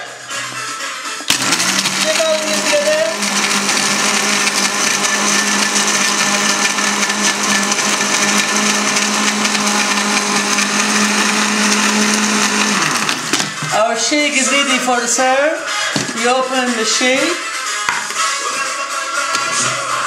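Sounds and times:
electric blender running: 1.3 - 13.8.

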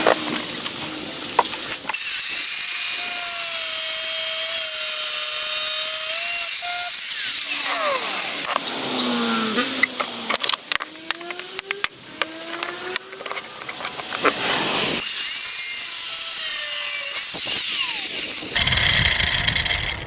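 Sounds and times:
cutting wheel hissing on steel: 2.0 - 9.9, 14.2 - 20.0
angle grinder motor whine: 2.0 - 20.0
grinder clicks: 6.6 - 14.4.

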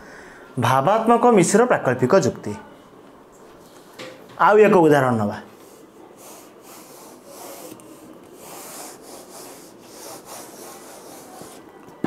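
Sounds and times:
eraser wiping a whiteboard: 5.6 - 11.7.

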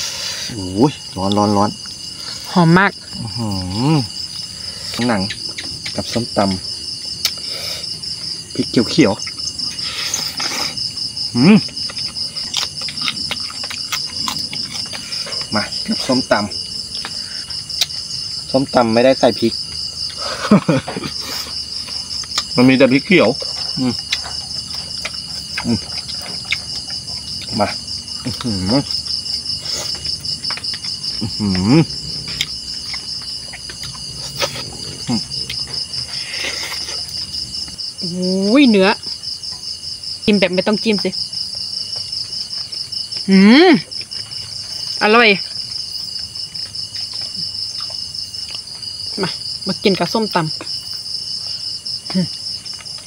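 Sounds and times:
night insects trilling: 0.0 - 53.0
eating clicks: 7.1 - 18.2, 21.1 - 37.9
person humming: 31.2 - 32.0.

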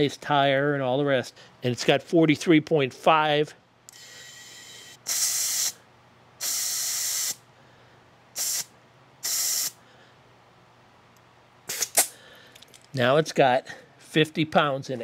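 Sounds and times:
compressed air hissing into tire: 3.9 - 5.8, 6.4 - 7.4, 8.4 - 9.8, 11.7 - 12.2.

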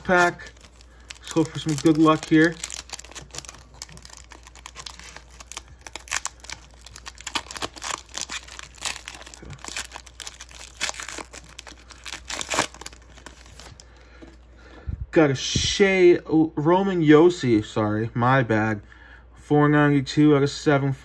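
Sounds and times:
foil wrapper crinkling and tearing: 0.0 - 14.0.

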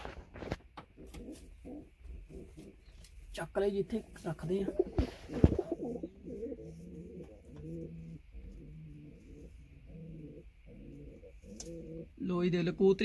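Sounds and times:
pigeons cooing: 0.8 - 3.1, 4.5 - 12.2.

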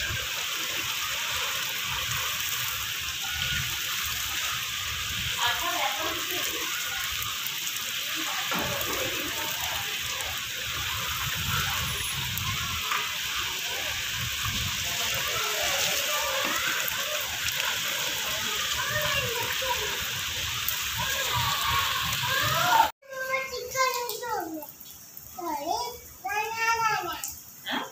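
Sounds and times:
heavy rain: 0.0 - 27.9
wind rumbling on microphone: 8.5 - 16.4, 18.4 - 22.9.

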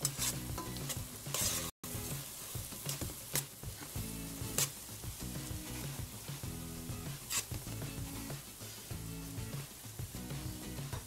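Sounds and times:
spoon scraping in a pot: 0.0 - 1.7, 2.8 - 4.8, 7.0 - 8.9
light sizzle: 0.0 - 11.0
soft background music: 0.0 - 11.0.

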